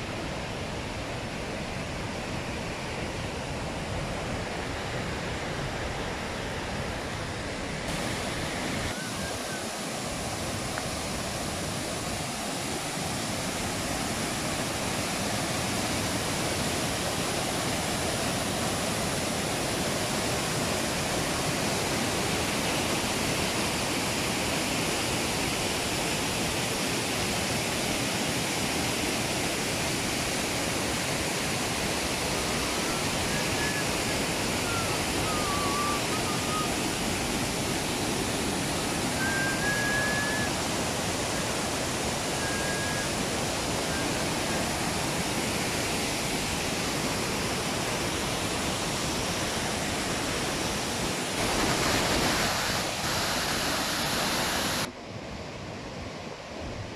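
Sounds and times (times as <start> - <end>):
waterfall rushing: 0.0 - 55.0.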